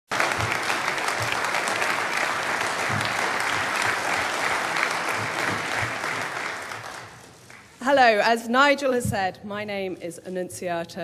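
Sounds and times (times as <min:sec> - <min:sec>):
large audience applauding: 0:00.1 - 0:07.8.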